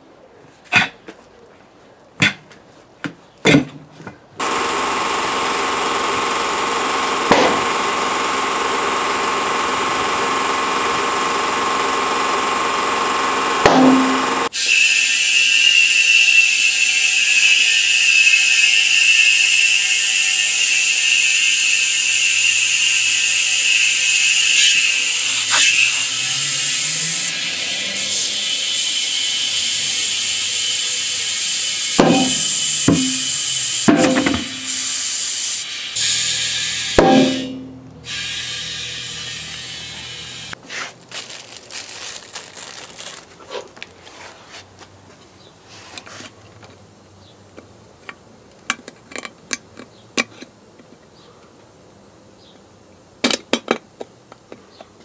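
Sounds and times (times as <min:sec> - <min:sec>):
compressed air hissing: 0:13.9 - 0:40.6
knocks: 0:32.0 - 0:33.2.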